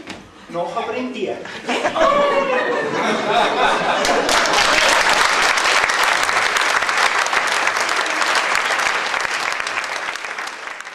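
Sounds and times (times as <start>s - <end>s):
audience applauding: 3.8s - 10.9s.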